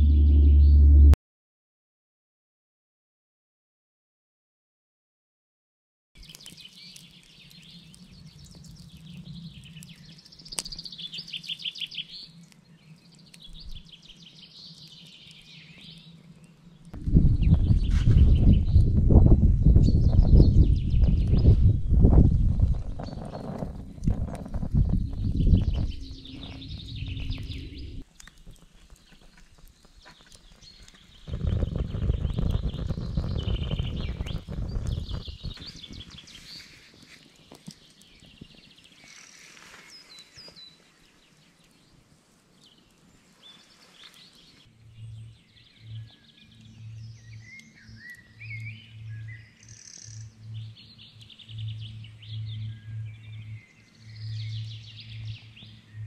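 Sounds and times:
low pulsing tone: 0.0s - 1.2s, 17.0s - 28.0s, 44.7s - 56.0s
low rumble: 0.0s - 1.2s, 17.0s - 28.0s, 31.3s - 36.0s
birds singing and chirping: 6.2s - 56.0s.

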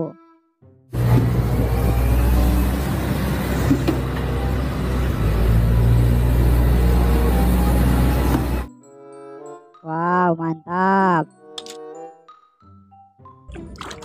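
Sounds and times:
excavator diesel engine droning: 1.0s - 8.7s.

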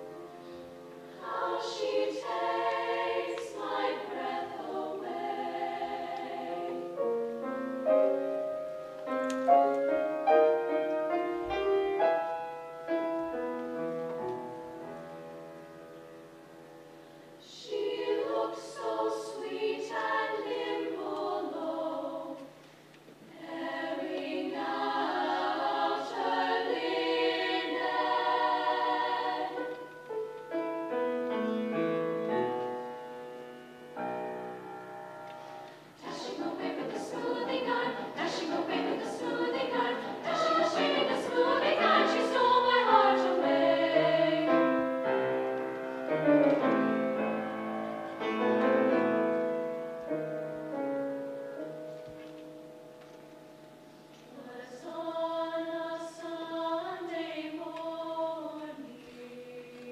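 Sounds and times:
piano accompaniment: 0.0s - 3.5s, 6.5s - 17.0s, 24.1s - 54.0s
women's choir singing: 0.0s - 7.5s, 17.4s - 22.6s, 23.3s - 30.1s, 36.0s - 47.5s, 54.3s - 59.9s.

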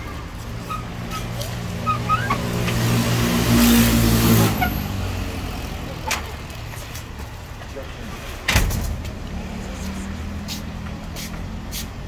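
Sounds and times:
vehicle engine hum passing: 7.8s - 12.0s.

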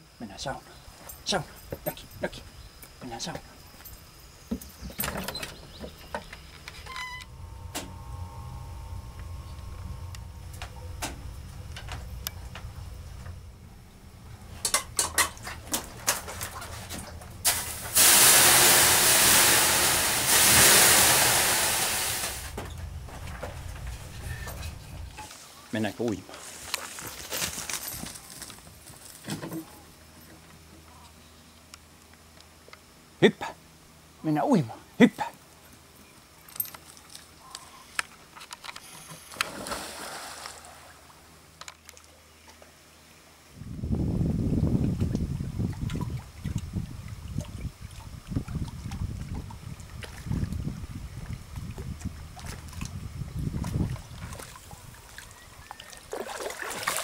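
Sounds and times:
water hissing on hot stones: 17.4s - 22.6s
dog splashing into water: 39.4s - 41.0s, 55.8s - 57.0s.

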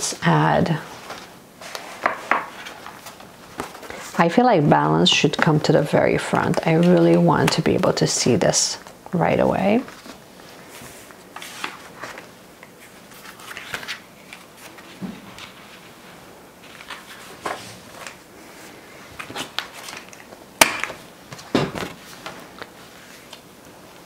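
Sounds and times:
paper pages rustling: 0.9s - 4.2s, 9.7s - 20.4s, 21.3s - 24.0s.

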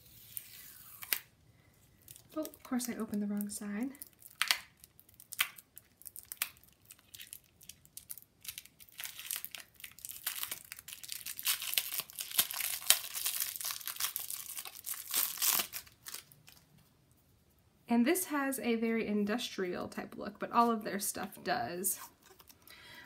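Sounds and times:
packaging crinkling and tearing: 2.0s - 16.8s.

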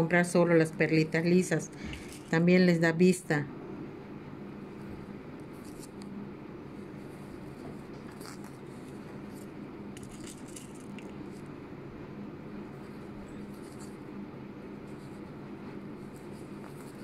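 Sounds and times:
low background hum: 0.0s - 17.0s
needle and thread through fabric: 0.1s - 2.6s, 4.7s - 11.7s, 12.6s - 17.0s
beads being handled: 8.2s - 11.5s.

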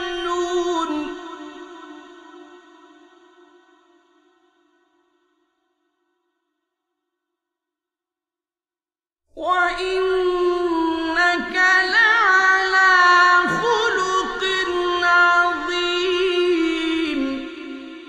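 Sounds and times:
man reciting in melodic chant: 0.0s - 2.7s, 9.5s - 18.0s.

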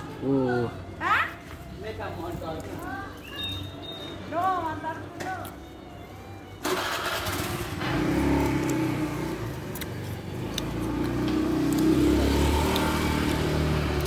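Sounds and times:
vehicle engine revving: 6.6s - 14.0s.

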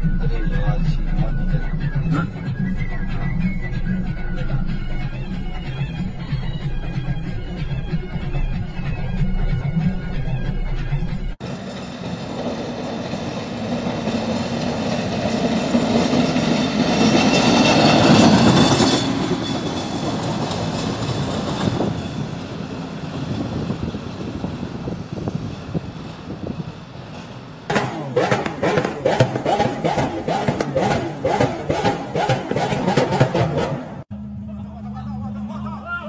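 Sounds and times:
music: 0.0s - 11.4s, 34.1s - 36.0s
snow blower throwing snow: 27.7s - 34.0s.

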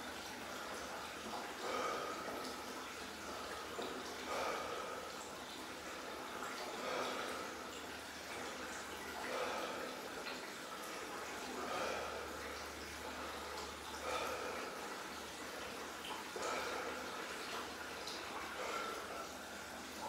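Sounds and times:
man breathing slowly: 1.6s - 2.6s, 4.2s - 5.2s, 6.6s - 7.7s, 9.2s - 10.2s, 11.5s - 15.7s, 16.4s - 17.3s, 18.5s - 19.4s.

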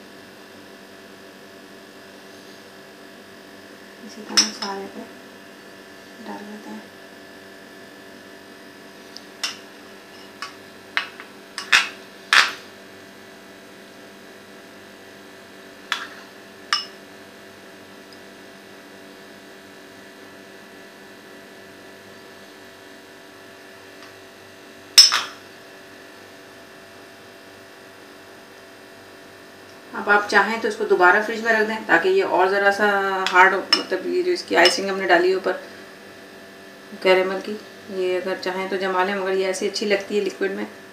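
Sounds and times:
spoon clinking on bowl: 25.0s - 25.4s.

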